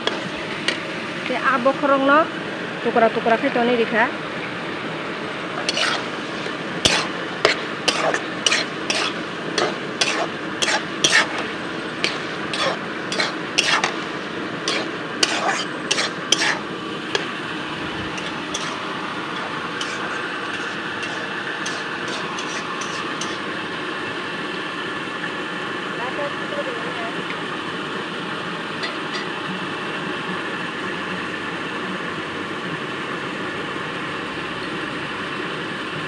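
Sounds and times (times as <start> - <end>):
metal spatula scraping wok: 0.0 - 1.0, 5.6 - 23.5, 28.8 - 29.3
frying hiss: 0.0 - 36.0.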